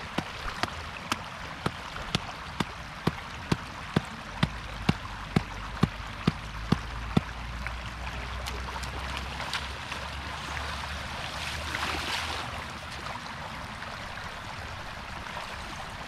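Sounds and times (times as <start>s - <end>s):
wooden stake knock: 0.0s - 7.4s
feet splashing in water: 0.0s - 7.5s
floodwater rushing: 0.0s - 16.0s.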